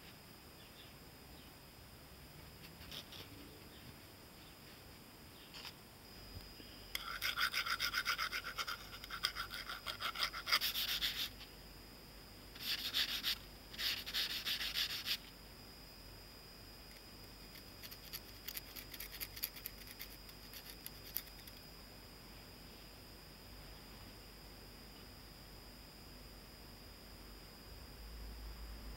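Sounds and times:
hand file rasping on metal: 7.0s - 11.2s.

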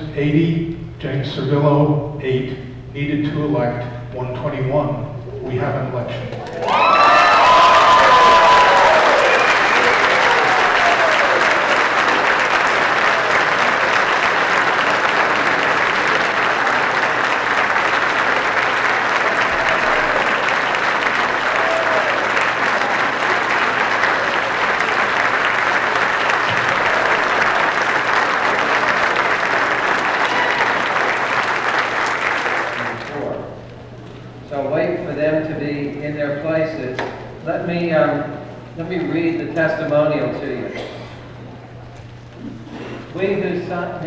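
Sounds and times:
audience applauding: 6.4s - 33.6s.

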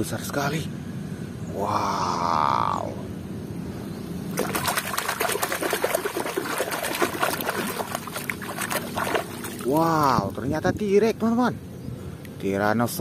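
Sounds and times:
scrubbing plastic toy: 4.4s - 9.8s
hand splashing in water: 4.4s - 9.9s.

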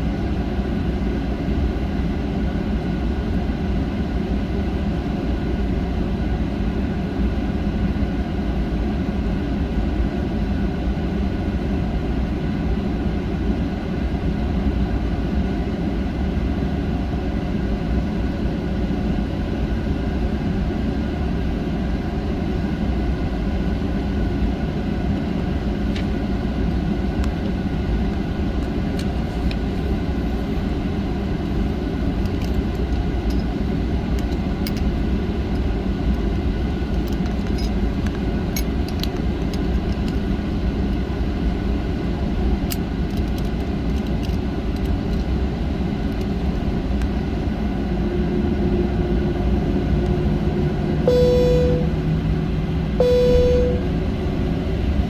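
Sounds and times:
steady hum: 18.3s - 55.0s
brief high tone: 51.1s - 52.0s, 53.0s - 53.9s.

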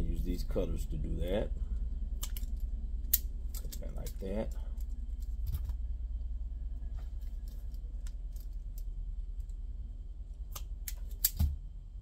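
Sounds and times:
steady low hum: 0.0s - 12.0s
wire cutters snipping: 10.5s - 11.5s.

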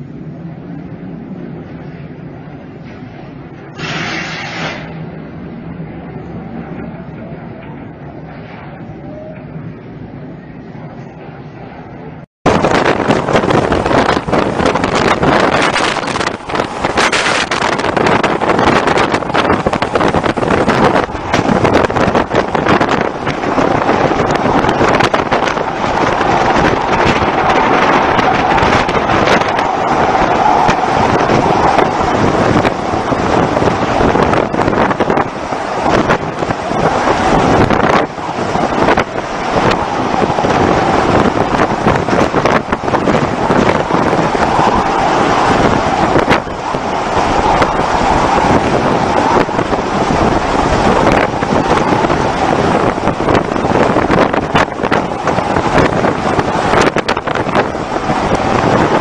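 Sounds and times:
storm wind on microphone: 0.0s - 59.0s
wind buffeting knocks: 12.4s - 59.0s.

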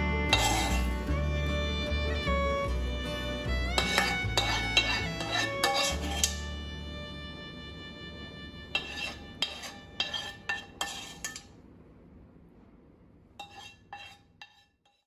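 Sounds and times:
metal spoon clinking on plates: 0.3s - 0.9s, 3.8s - 6.4s, 8.7s - 11.5s.

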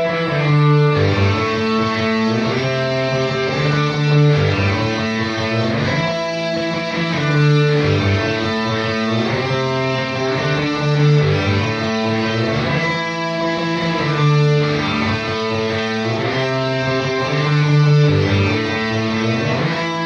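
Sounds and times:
guitar through effects: 0.0s - 20.0s.

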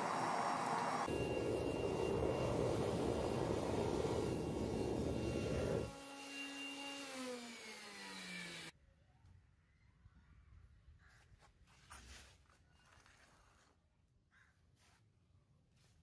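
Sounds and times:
air blower motor whine: 0.0s - 8.7s.

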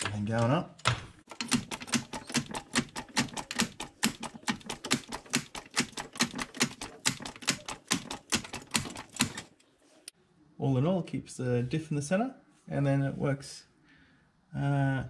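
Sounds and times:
trolley jack clicking: 1.3s - 9.5s.

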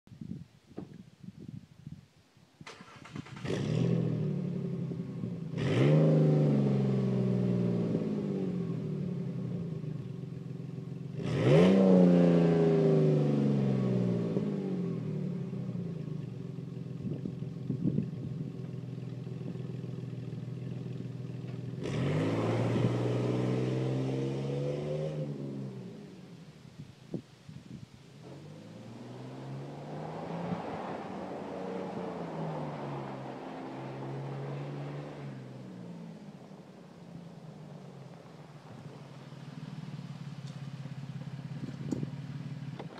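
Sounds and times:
car engine starting and idling: 2.6s - 27.3s, 28.0s - 42.9s
car driving off: 2.6s - 42.9s
car engine revving: 2.7s - 26.5s, 28.2s - 42.9s.

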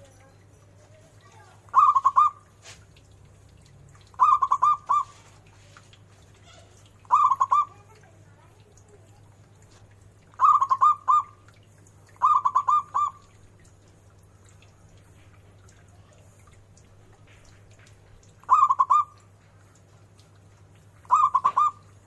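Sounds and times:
dove cooing: 1.3s - 2.5s, 4.2s - 5.4s, 6.4s - 8.0s, 10.3s - 11.4s, 12.2s - 13.3s, 18.4s - 19.2s, 21.0s - 22.0s.

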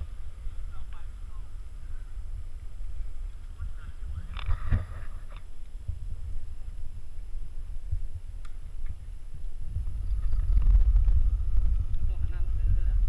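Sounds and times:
wind and road noise: 0.0s - 13.0s
faint clicks: 8.4s - 9.0s.

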